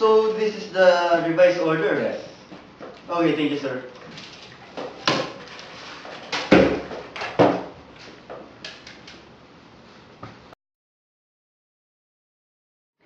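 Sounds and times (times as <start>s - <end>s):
knocks and thumps on desk: 6.4s - 7.7s.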